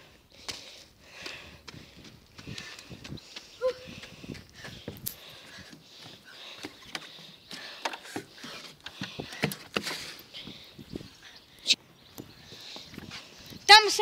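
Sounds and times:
footsteps on gritty asphalt: 0.4 - 10.6.

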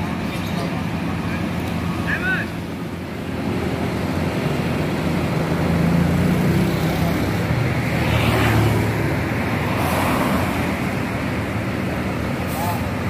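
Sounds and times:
vehicle engines humming: 0.0 - 13.0
vehicles passing close by: 0.0 - 13.0.

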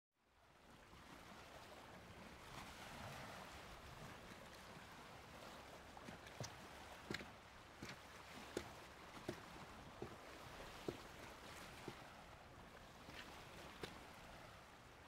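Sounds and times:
wind and water at shore: 0.2 - 15.0
footsteps on hard ground: 6.1 - 12.0.

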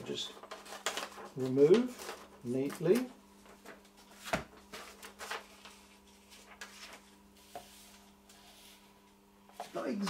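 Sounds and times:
paper rustling and scraping: 0.2 - 9.0.

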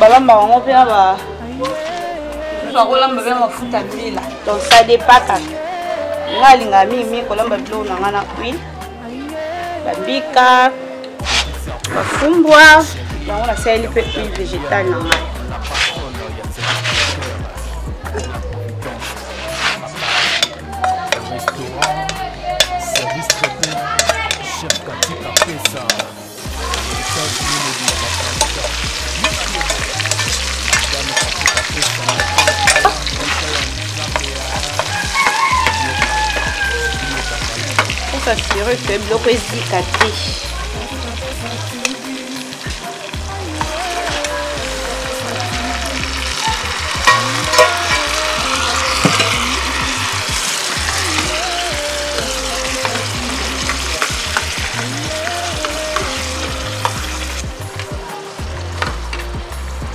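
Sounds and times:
metal ladle scraping a pan: 11.2 - 12.4, 15.1 - 17.3, 19.0 - 26.1, 26.7 - 38.7, 46.2 - 51.2
vegetables sizzling in oil: 19.1 - 59.9.

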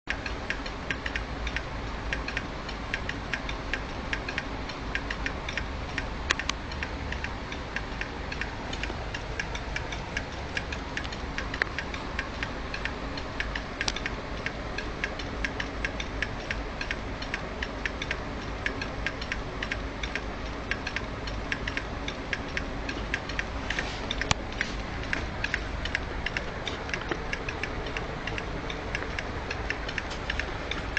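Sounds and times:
hard disk clicking: 0.1 - 30.9
steady low hum: 0.1 - 30.9.

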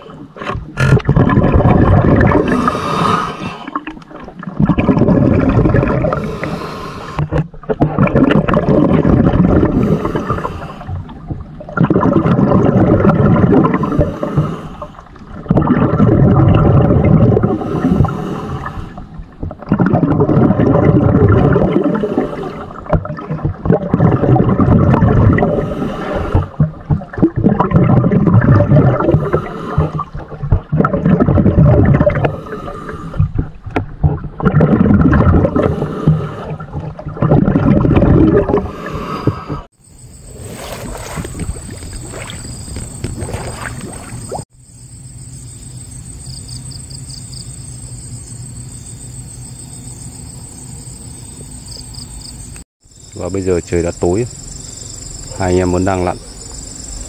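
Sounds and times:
muffled water sloshing underwater: 0.0 - 44.7.

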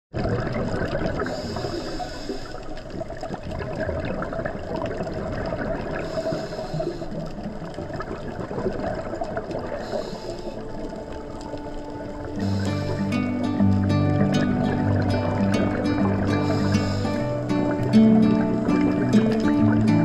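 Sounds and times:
underwater crackling hiss: 0.5 - 20.0
regulator exhaling bubbles: 12.2 - 20.0.

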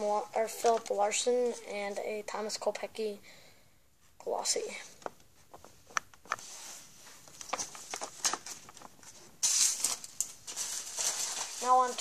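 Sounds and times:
wrapper crinkling: 7.3 - 12.0.

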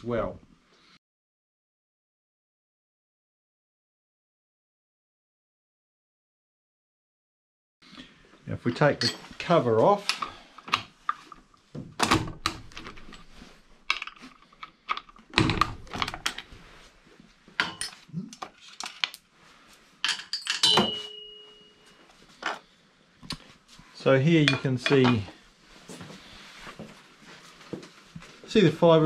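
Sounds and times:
metal clicks and clanks: 13.9 - 16.5
short metallic ring: 20.4 - 22.0.

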